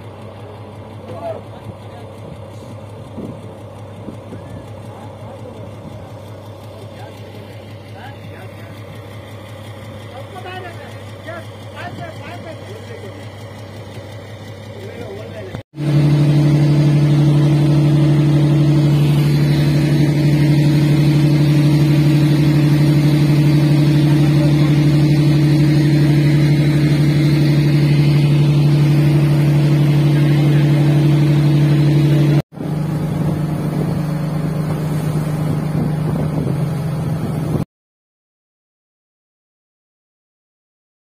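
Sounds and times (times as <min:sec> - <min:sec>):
boat engine drone: 0:00.0 - 0:37.6
water rushing: 0:15.8 - 0:37.6.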